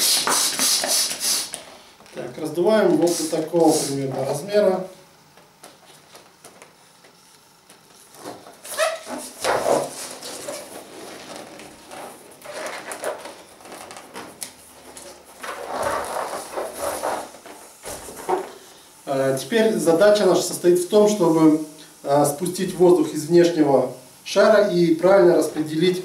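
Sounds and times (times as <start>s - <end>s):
balloons rubbing and squeaking: 8.1s - 18.5s.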